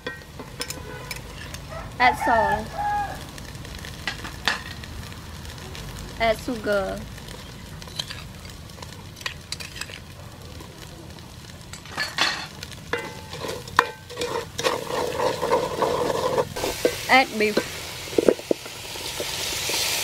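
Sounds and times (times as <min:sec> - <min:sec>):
wooden spoon scraping a pot: 0:00.0 - 0:01.7, 0:12.9 - 0:19.9
paste frying in oil: 0:00.0 - 0:20.0.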